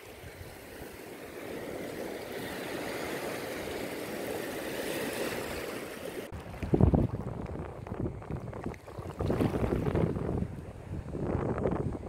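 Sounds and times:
waves washing over rocks: 0:00.0 - 0:10.9
wind on microphone: 0:06.3 - 0:12.0.

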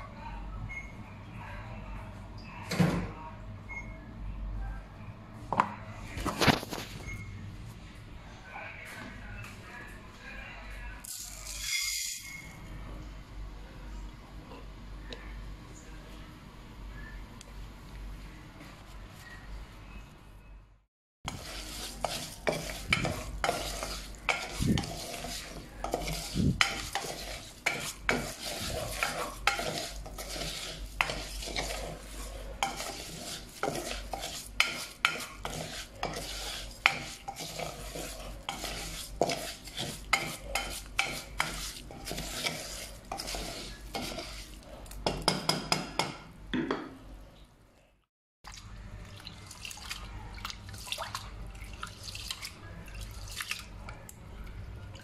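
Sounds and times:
hand swishing rice in water: 0:21.3 - 0:44.6
light sizzle of oil: 0:21.3 - 0:45.0
wooden spoon stirring rice in pot: 0:21.3 - 0:46.0.

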